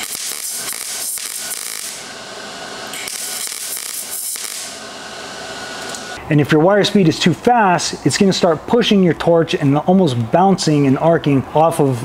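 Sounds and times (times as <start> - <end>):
welding arc crackling and hissing: 0.0 - 6.2.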